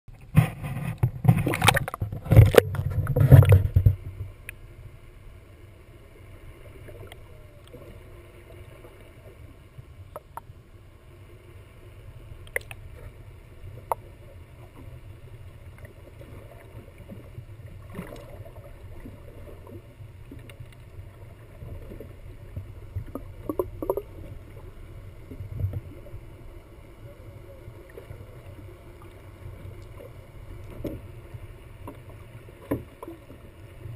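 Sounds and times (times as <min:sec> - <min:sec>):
water splashing against camera: 0:00.1 - 0:04.6, 0:15.7 - 0:33.9
low underwater rumble: 0:00.1 - 0:33.9
faint clicks: 0:01.0 - 0:04.6, 0:12.4 - 0:12.9, 0:20.3 - 0:21.0.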